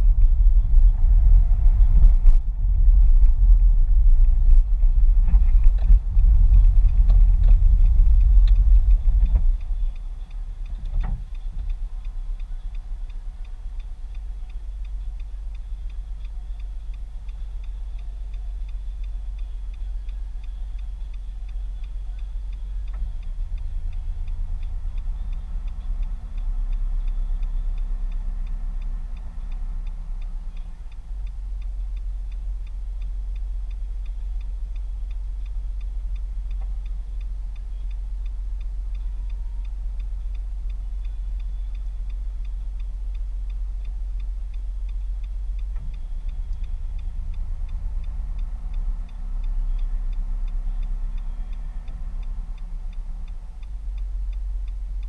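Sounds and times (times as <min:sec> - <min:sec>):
car engine idling: 0:00.0 - 0:55.0
indicator ticking: 0:00.0 - 0:55.0
low hum: 0:00.0 - 0:55.0.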